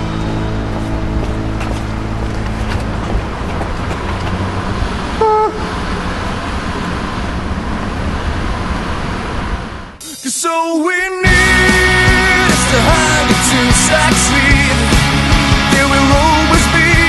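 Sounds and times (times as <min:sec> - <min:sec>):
road traffic rumble: 0:00.0 - 0:10.1
car horn toot: 0:05.2 - 0:05.8.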